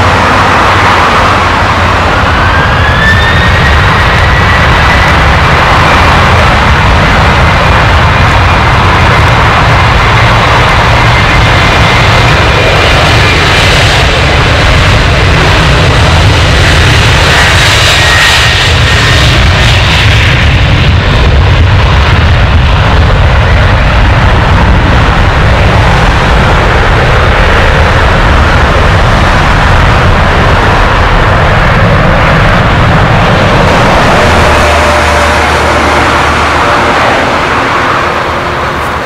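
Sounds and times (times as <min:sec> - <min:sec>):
jet engine roar: 0:00.0 - 0:39.0
hissing whine: 0:22.7 - 0:39.0.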